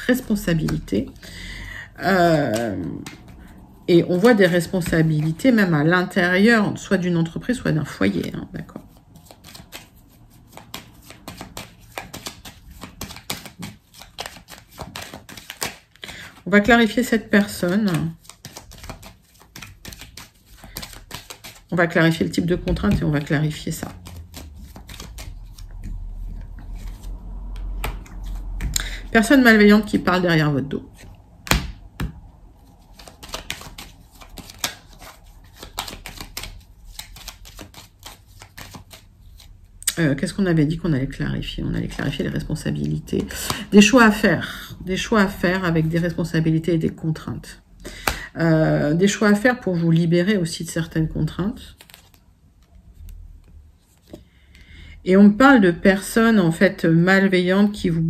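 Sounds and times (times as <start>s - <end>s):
cards being shuffled: 0.1s - 1.4s, 2.0s - 5.8s, 7.7s - 39.9s, 51.2s - 54.3s
cards clicking and flicking: 9.2s - 9.9s, 10.5s - 16.4s, 17.4s - 21.7s, 23.8s - 26.0s, 32.9s - 39.0s
cards snapping: 9.2s - 16.4s, 17.7s - 21.7s, 23.8s - 26.0s, 32.9s - 39.5s.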